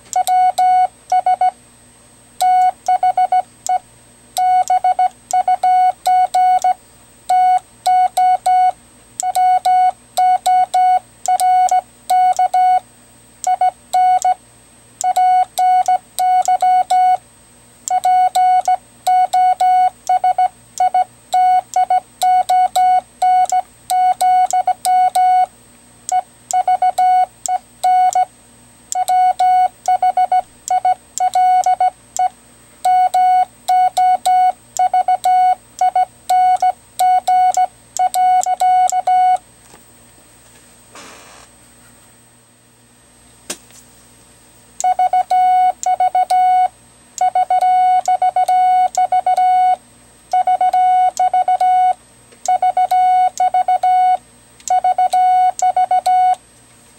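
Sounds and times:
morse code beeps: 0:00.2 - 0:01.6, 0:02.4 - 0:03.8, 0:04.4 - 0:12.8, 0:15.0 - 0:17.2, 0:17.9 - 0:25.5, 0:26.1 - 0:28.3, 0:29.0 - 0:39.4, 0:44.8 - 0:56.4.

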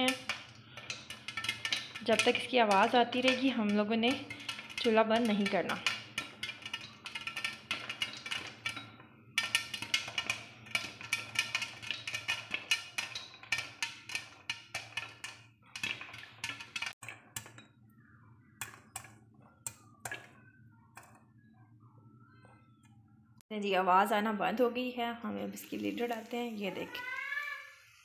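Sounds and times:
popcorn popping in covered pot: 0:00.0 - 0:21.5.

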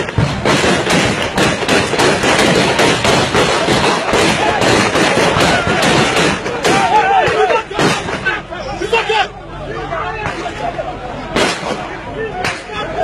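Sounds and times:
rapid gunshots: 0:00.0 - 0:08.2, 0:11.4 - 0:11.8.

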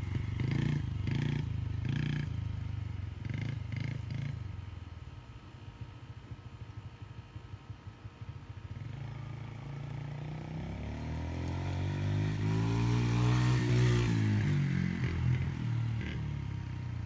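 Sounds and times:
dirt bike engine passing: 0:00.0 - 0:02.4, 0:08.7 - 0:16.8.

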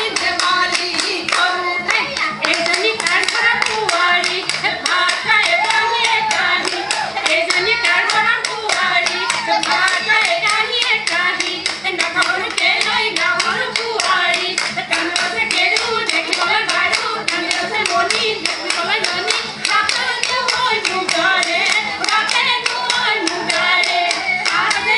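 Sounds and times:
rhythmic hand claps: 0:00.0 - 0:24.9
women singing together: 0:00.0 - 0:24.9.

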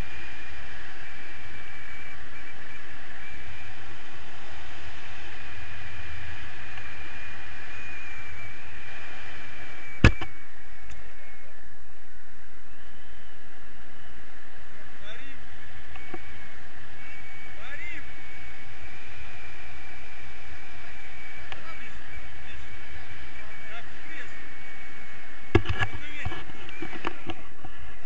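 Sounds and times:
thin steady whistle: 0:00.0 - 0:28.0
wind rushing over microphone: 0:00.0 - 0:28.0.

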